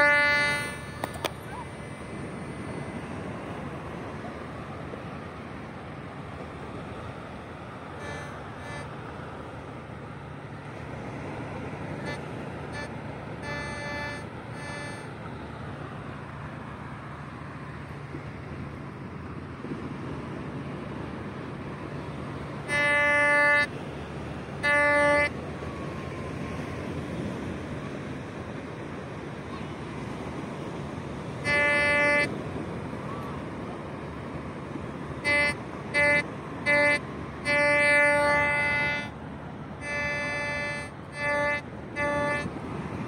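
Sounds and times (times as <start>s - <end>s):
metal detector beeps: 0.0s - 1.6s, 12.0s - 15.1s
wind noise on microphone: 0.0s - 9.0s, 18.0s - 43.0s.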